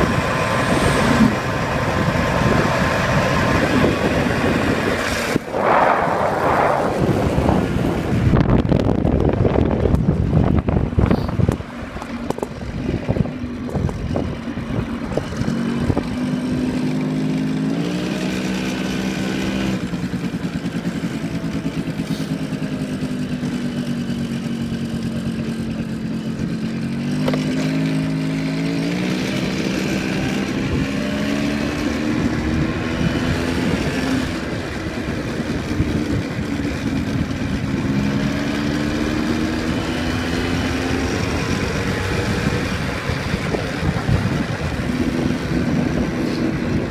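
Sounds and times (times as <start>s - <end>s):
wind noise: 0.0s - 16.7s, 29.6s - 46.9s
motorbike engine riding: 0.0s - 46.9s.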